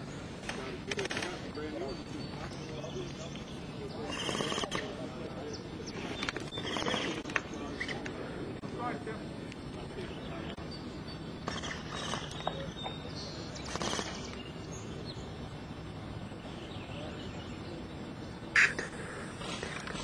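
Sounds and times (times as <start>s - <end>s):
woodland background noise: 0.0s - 20.0s
short bird calls: 4.0s - 5.0s, 5.9s - 8.0s, 13.3s - 14.6s, 18.5s - 20.0s.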